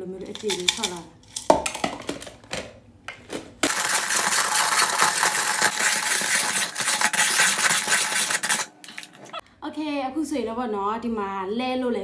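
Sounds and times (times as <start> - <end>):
ice shaver crunching ice: 3.6 - 9.2.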